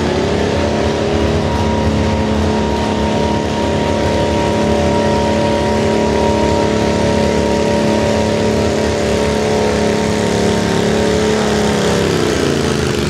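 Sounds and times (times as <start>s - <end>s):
tractor engine running at high revs: 0.0s - 13.0s.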